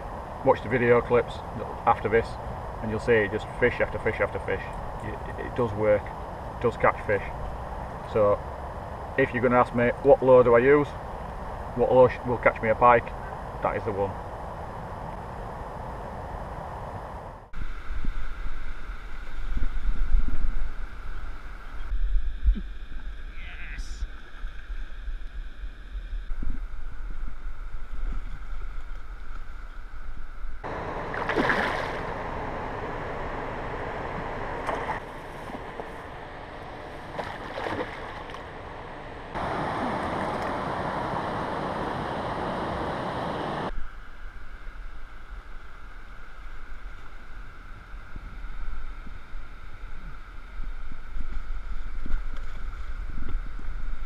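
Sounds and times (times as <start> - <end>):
wind rumbling on microphone: 0.0 - 32.8, 34.0 - 54.0
fish thrashing and splashing: 31.1 - 32.1, 37.0 - 38.6.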